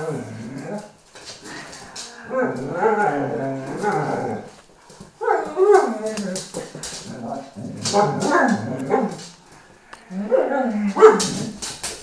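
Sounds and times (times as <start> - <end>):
dog whining howls: 2.2 - 4.5, 5.2 - 6.4.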